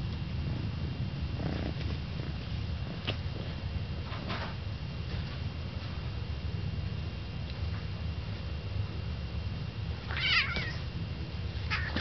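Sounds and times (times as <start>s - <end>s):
cat purring: 1.3s - 3.6s.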